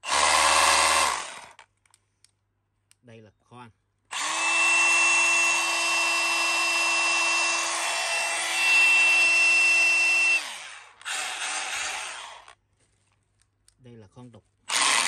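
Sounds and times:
rotary hammer motor whine: 4.1s - 12.5s.

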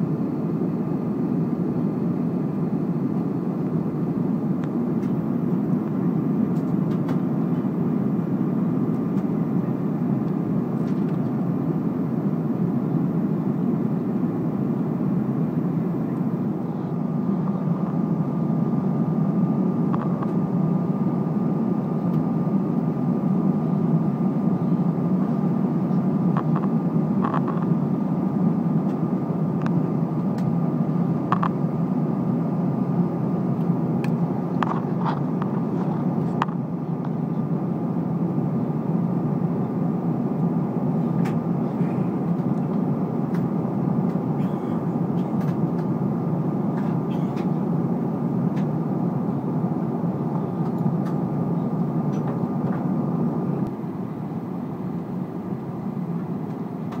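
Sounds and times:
airplane cabin engine roar: 0.0s - 57.0s
thin steady whine: 0.0s - 57.0s.

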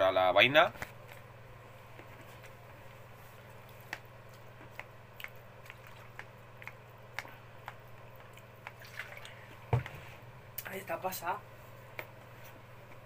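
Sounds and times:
steady low hum: 0.0s - 13.0s
person chewing: 4.3s - 8.8s.

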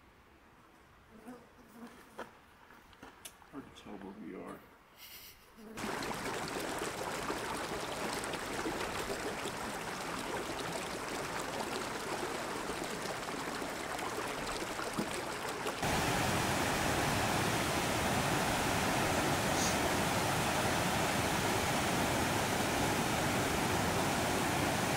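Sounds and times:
creek rushing over rocks: 5.8s - 24.9s
small water cascade: 5.8s - 24.9s.

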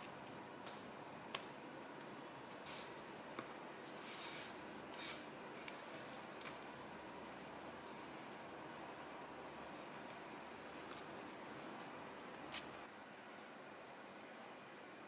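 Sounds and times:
soft brushing and scraping on plate: 3.8s - 6.4s.

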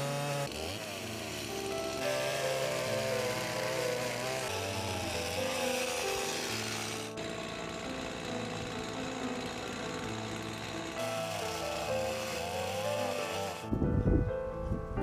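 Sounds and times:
chainsaw cutting log: 0.0s - 13.8s
background music: 0.0s - 15.0s.

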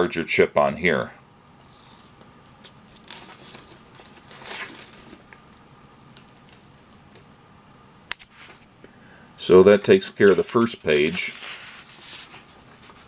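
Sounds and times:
paper rustling: 1.8s - 7.2s, 9.8s - 13.0s.

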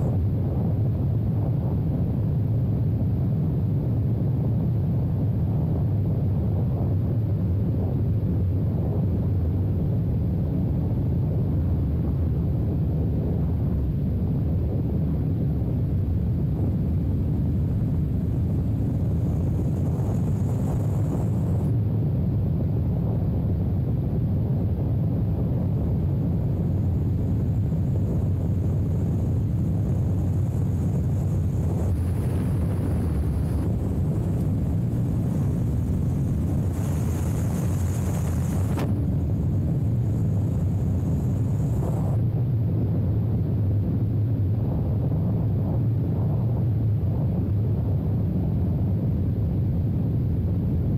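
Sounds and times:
wind on microphone: 0.0s - 50.9s
motorcycle engine rumble: 17.0s - 21.7s, 26.2s - 42.3s
road noise on gravel: 29.0s - 42.2s.

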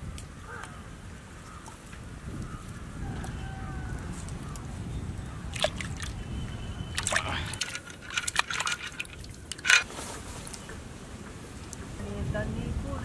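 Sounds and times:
water sloshing and squishing: 0.1s - 4.8s, 5.4s - 10.7s.

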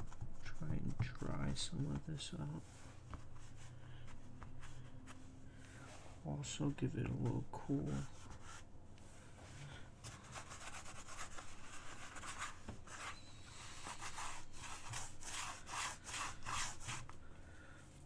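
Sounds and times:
fabric scratching on canvas: 10.0s - 17.1s.

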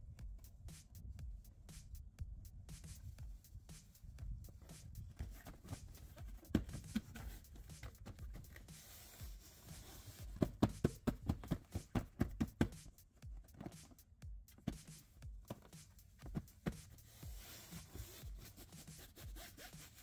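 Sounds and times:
hands patting seat cover: 4.5s - 20.0s.

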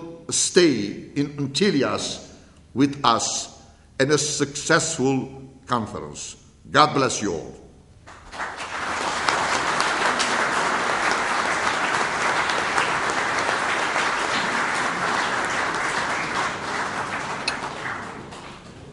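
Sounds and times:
audience applauding: 8.0s - 18.9s.

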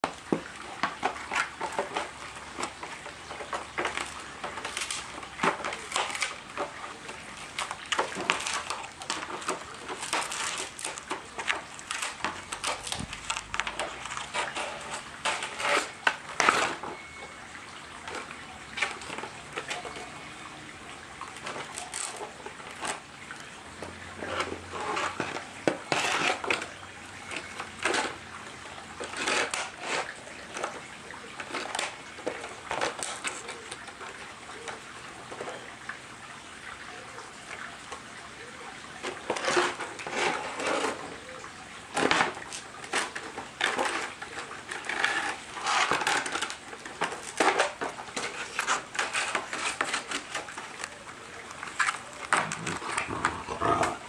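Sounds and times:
dogs chewing and tugging: 0.0s - 17.3s, 42.0s - 54.0s
dry palm frond crackling and scraping: 0.0s - 20.5s, 21.1s - 35.7s, 38.4s - 54.0s.

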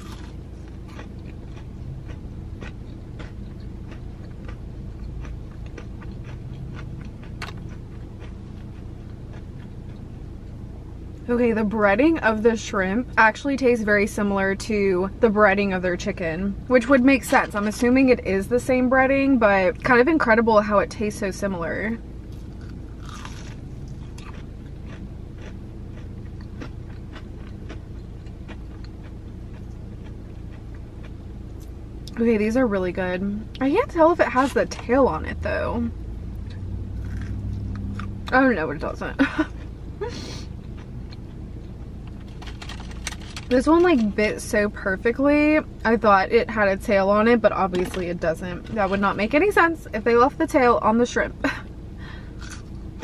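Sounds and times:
person chewing crunchy food: 0.0s - 10.3s, 22.3s - 32.2s, 36.4s - 38.3s, 39.3s - 43.5s, 52.2s - 53.0s
low background hum: 0.0s - 53.0s.

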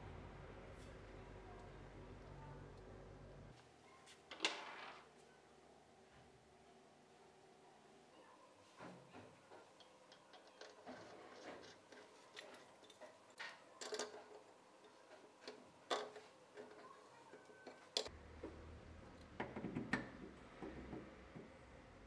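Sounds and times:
metallic clicks and scrapes: 9.6s - 18.1s.

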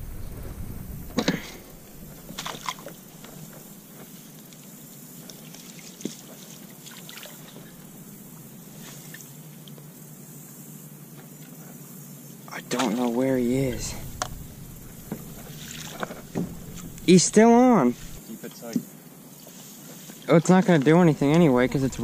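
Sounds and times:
water sloshing: 0.0s - 3.8s, 12.7s - 18.2s, 21.1s - 22.0s
sharp knocks: 13.4s - 18.2s.

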